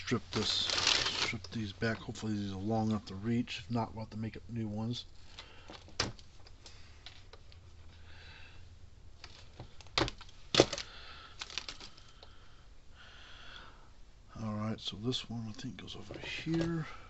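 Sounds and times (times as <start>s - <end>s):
soft rustling: 0.0s - 3.2s.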